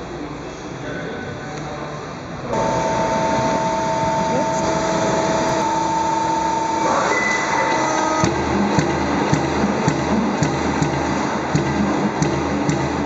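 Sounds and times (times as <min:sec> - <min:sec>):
machine whine: 0:02.5 - 0:13.0.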